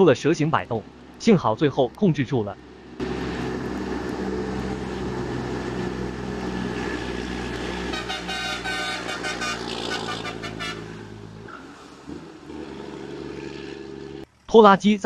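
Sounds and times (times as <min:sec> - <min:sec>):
truck traffic on wet road: 0:00.0 - 0:15.0
vehicle horn short blasts: 0:07.9 - 0:11.0.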